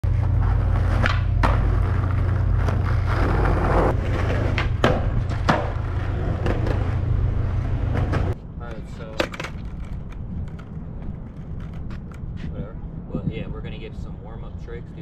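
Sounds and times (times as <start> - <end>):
skateboard wheels rumbling: 0.0 - 13.8
skateboard clacks: 0.5 - 7.0, 9.1 - 12.2.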